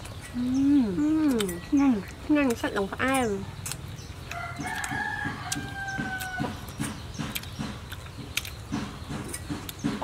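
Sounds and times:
rooster crowing: 0:04.4 - 0:06.6.

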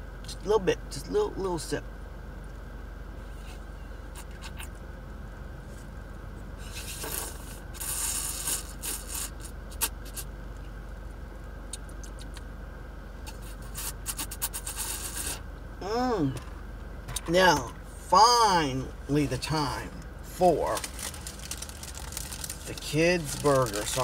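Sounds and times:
car air conditioning hum: 0:00.0 - 0:24.0
slurping through a straw: 0:06.7 - 0:10.2, 0:13.3 - 0:15.4.

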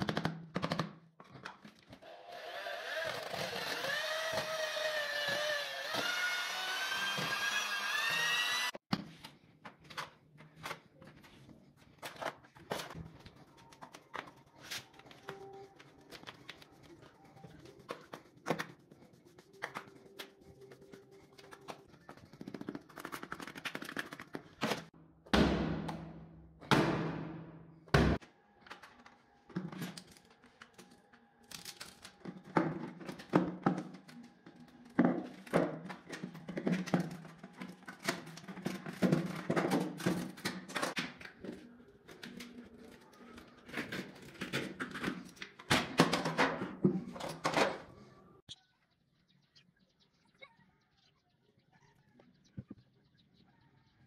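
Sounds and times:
power drill with mixing paddle: 0:02.0 - 0:08.8.

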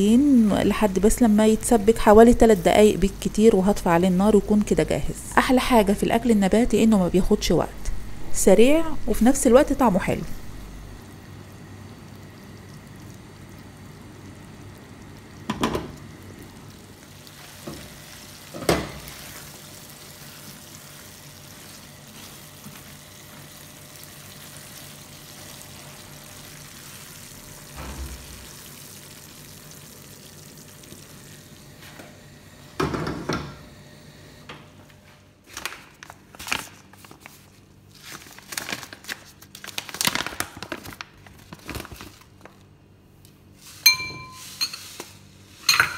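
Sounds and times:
vegetables sizzling in a frying pan: 0:13.2 - 0:31.7
food pouch crinkling: 0:35.5 - 0:42.7.

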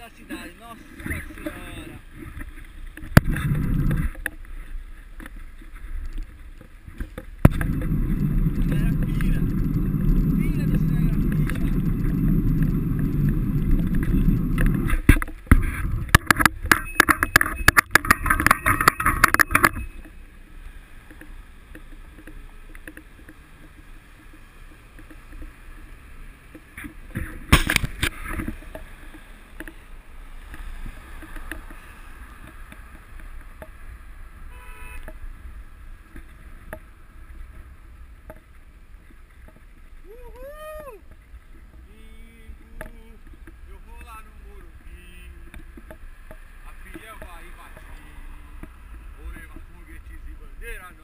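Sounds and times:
road and traffic noise: 0:00.0 - 0:51.0
wind rushing over microphone: 0:00.9 - 0:20.0.

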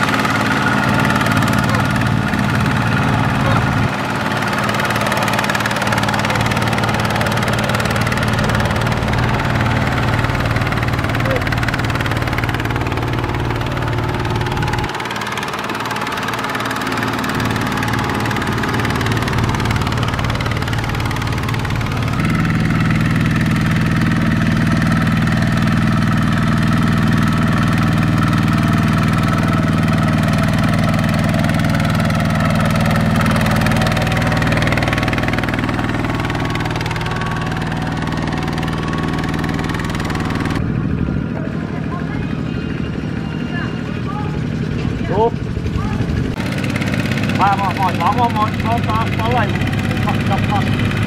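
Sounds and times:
diesel engine running: 0:00.0 - 0:51.0.

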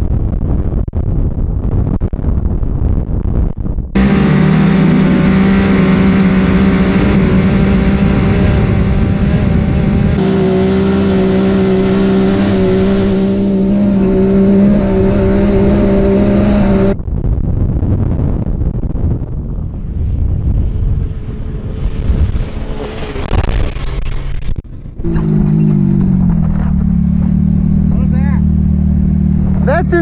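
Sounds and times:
wind rushing over microphone: 0:00.0 - 0:30.0
engine running at full throttle: 0:04.0 - 0:17.0, 0:25.0 - 0:30.0.

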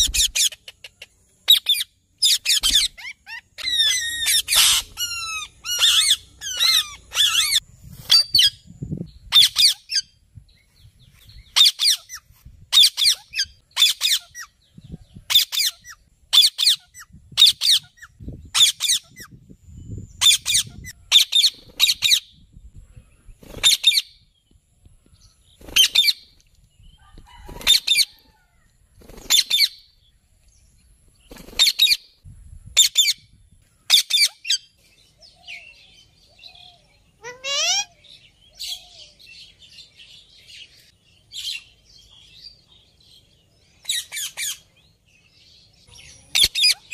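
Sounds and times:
parakeets screeching: 0:01.5 - 0:08.5, 0:37.2 - 0:38.0.

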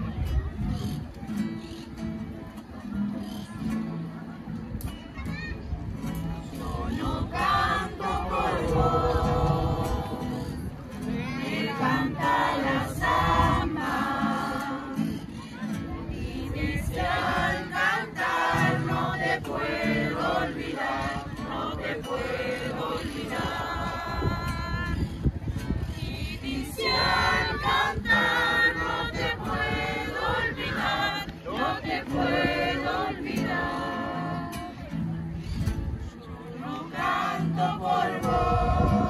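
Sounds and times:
acoustic guitar: 0:00.0 - 0:39.0
mixed choir singing: 0:06.4 - 0:34.9, 0:36.5 - 0:39.0.

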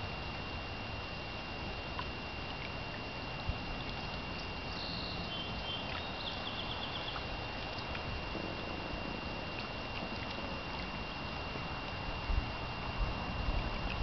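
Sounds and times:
low rumble and hiss: 0:00.0 - 0:14.0
thin high whine: 0:00.0 - 0:14.0
faint high chirps: 0:04.3 - 0:08.0.

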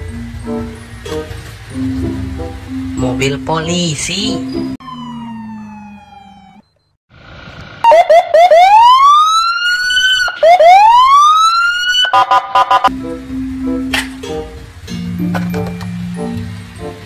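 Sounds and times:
electronic police siren: 0:04.8 - 0:07.0, 0:07.8 - 0:12.9.

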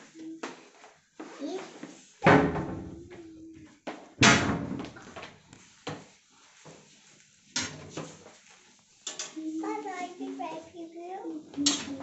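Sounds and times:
door slamming: 0:04.2 - 0:05.0.

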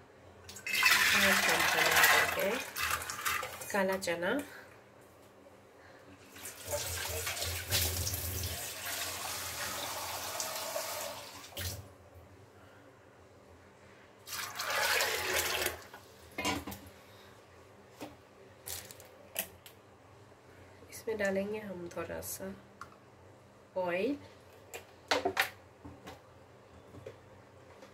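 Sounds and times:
water running: 0:00.5 - 0:03.8, 0:06.3 - 0:11.9, 0:14.2 - 0:16.0.

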